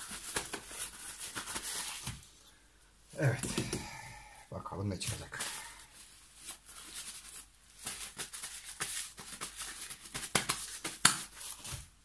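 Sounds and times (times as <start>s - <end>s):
paper towel rustling and crinkling: 0.0s - 2.3s, 4.9s - 12.0s.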